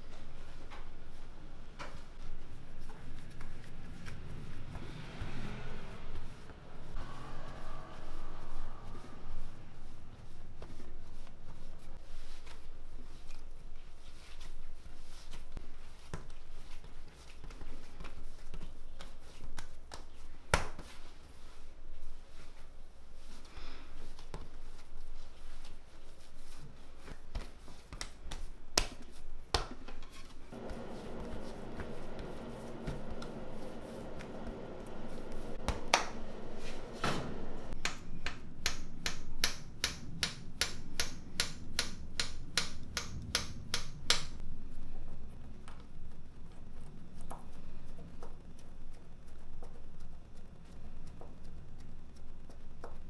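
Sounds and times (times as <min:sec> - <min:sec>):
hands patting pastry dough: 0:01.8 - 0:04.9, 0:09.8 - 0:44.4, 0:45.4 - 0:53.0.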